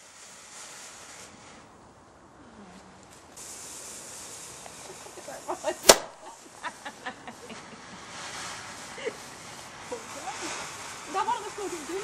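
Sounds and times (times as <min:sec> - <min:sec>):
small firework cracks: 0:00.0 - 0:01.7, 0:02.9 - 0:06.7, 0:07.5 - 0:12.0
firework hissing sparks: 0:00.0 - 0:02.0, 0:02.8 - 0:12.0
firework bang: 0:05.8 - 0:06.4.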